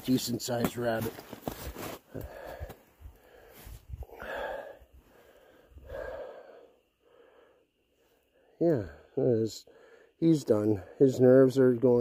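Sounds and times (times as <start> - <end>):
footsteps crunching through snow: 0.0 - 2.8
person exhaling breathily: 2.2 - 7.5.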